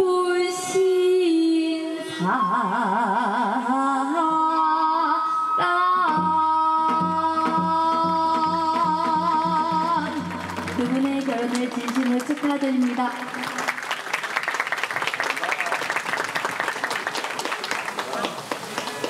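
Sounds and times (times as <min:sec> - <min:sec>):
person singing with vibrato: 0:00.0 - 0:11.5
rhythmic accompaniment: 0:05.9 - 0:13.7.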